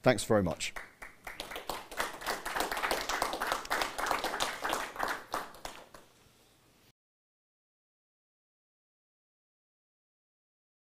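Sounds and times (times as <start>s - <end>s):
audience applauding: 0.8s - 6.0s.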